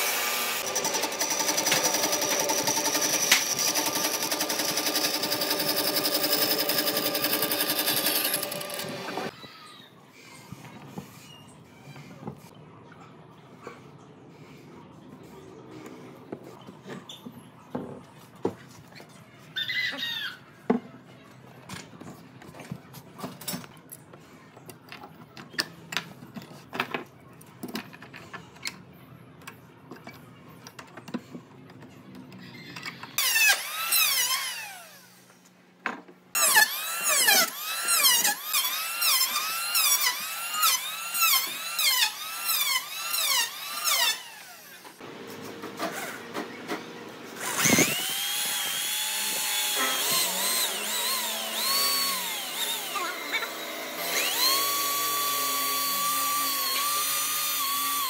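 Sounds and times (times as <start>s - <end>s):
electric drill boring into wood: 0.0s - 9.3s, 33.2s - 35.0s, 36.4s - 45.0s, 47.4s - 58.0s
electric hand planer cutting wood: 0.0s - 9.3s, 47.4s - 58.0s.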